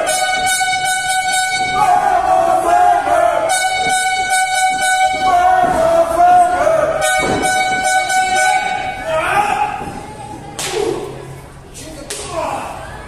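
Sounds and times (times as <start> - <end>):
long loud horn tone: 0.0 - 2.4, 3.2 - 9.1
thud: 7.0 - 8.0, 9.6 - 11.0.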